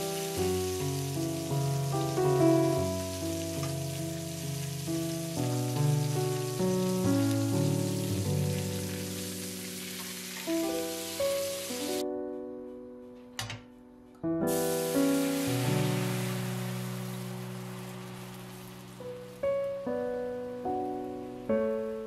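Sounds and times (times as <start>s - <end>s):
steady hiss: 0.0s - 12.0s, 14.5s - 22.0s
slow piano music: 0.0s - 22.0s.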